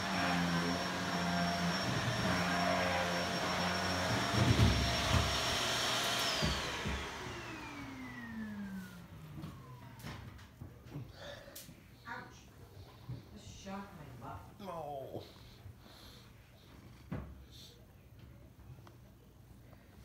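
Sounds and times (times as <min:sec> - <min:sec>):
electric motor whining: 0:00.0 - 0:08.9.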